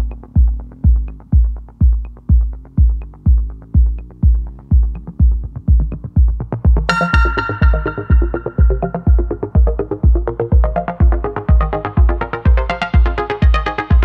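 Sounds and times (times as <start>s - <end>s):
hi-hat ticks: 0.0s - 14.0s
kick drum: 0.0s - 14.0s
bright synth chord: 6.9s - 10.0s.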